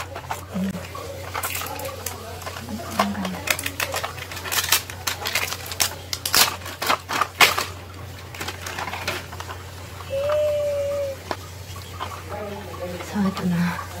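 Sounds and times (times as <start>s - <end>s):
plastic wrap crinkling: 0.0s - 10.3s.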